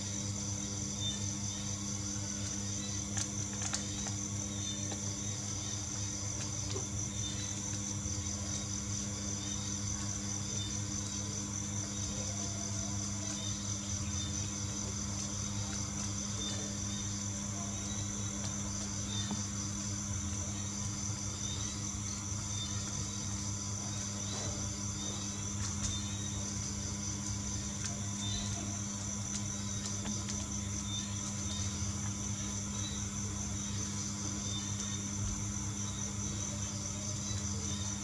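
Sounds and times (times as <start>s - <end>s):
high-pitched pulsing whine: 0.0s - 38.0s
steady low hum: 0.0s - 38.0s.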